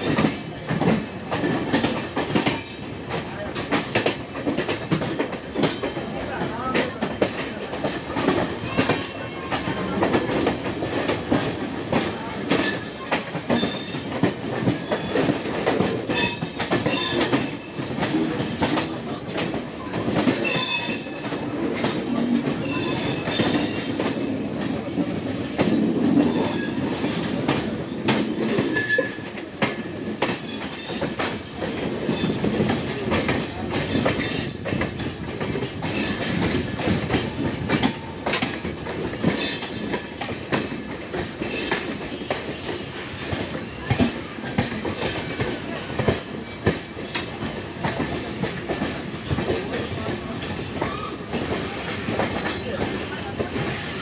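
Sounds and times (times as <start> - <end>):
train rumbling: 0.0 - 54.0.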